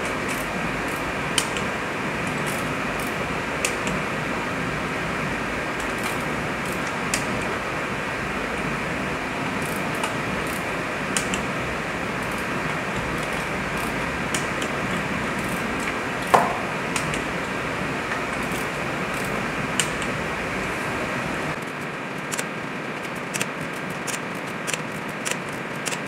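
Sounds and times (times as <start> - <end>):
steady background hum: 0.0 - 26.0
wrench clicking on bolts: 0.3 - 1.6.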